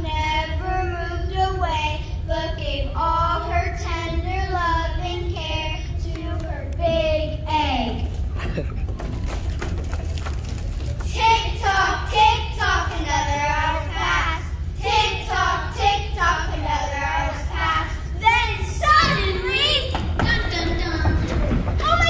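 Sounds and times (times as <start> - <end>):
young children singing: 11.0 - 22.0.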